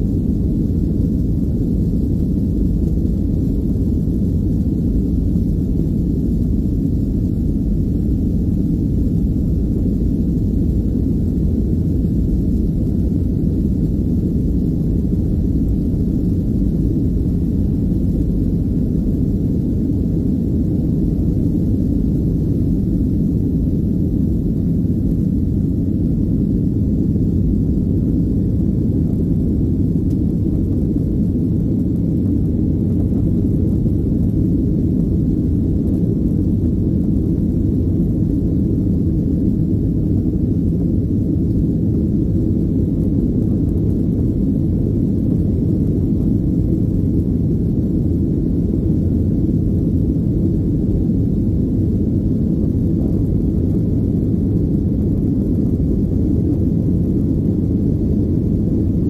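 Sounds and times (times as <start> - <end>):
jet engine cabin rumble: 0.0 - 59.0.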